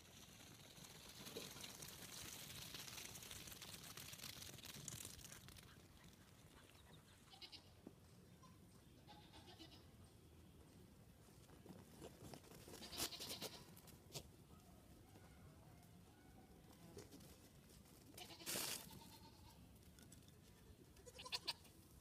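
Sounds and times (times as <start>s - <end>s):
goat kids bleating faintly: 8.4s - 10.0s, 12.7s - 13.8s, 18.1s - 19.7s, 21.0s - 21.7s.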